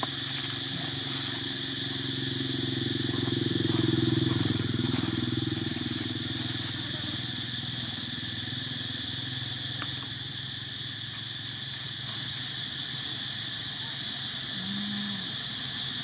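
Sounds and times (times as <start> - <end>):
small engine running: 0.0 - 13.1
high insect drone: 0.0 - 16.0.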